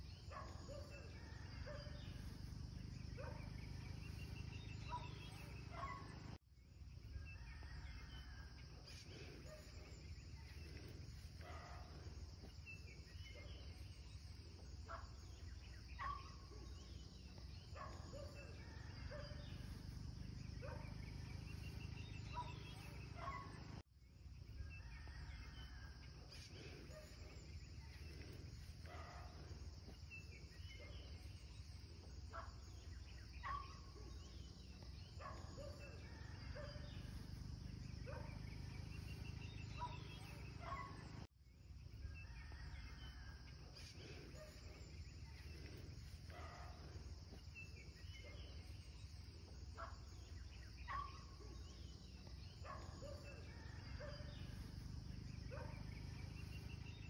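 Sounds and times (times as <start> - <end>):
short bird calls and chirps: 0.0 - 6.4, 42.0 - 57.0.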